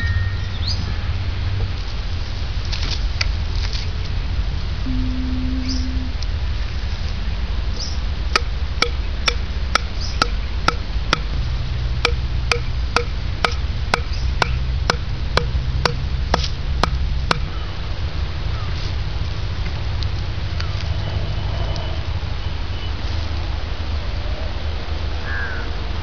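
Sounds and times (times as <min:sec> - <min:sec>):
wooden stake being knocked: 0:08.4 - 0:11.3, 0:12.1 - 0:17.5.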